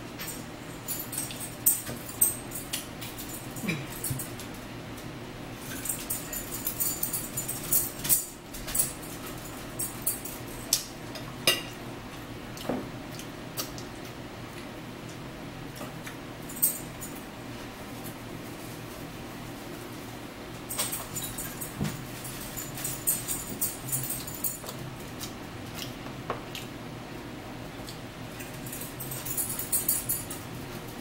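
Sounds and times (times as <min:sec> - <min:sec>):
chewing: 0:23.6 - 0:26.8.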